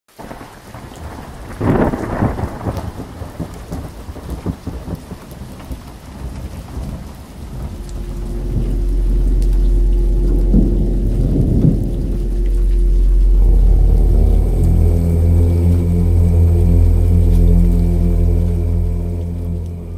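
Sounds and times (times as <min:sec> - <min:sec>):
steady rain: 0:00.1 - 0:19.9
thunder rumble: 0:00.2 - 0:19.9
low steady drone: 0:07.5 - 0:19.9
held tone: 0:07.8 - 0:19.9.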